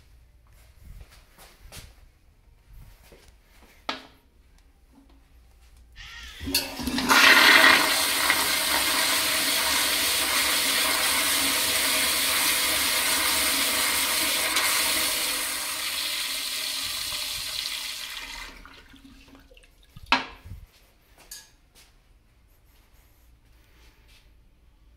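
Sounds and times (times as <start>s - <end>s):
toilet water rushing: 6.4s - 20.1s.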